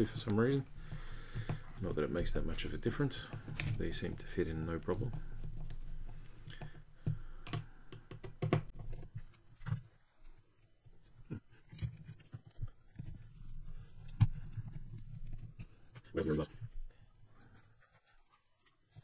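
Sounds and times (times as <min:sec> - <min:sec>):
plastic parts clicking and knocking: 0:00.0 - 0:10.0.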